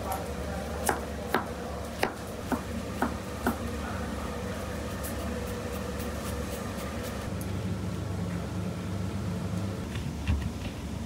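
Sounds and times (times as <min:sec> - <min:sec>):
steady low hum: 0:00.0 - 0:11.0
knife chopping on cutting board: 0:00.8 - 0:03.6.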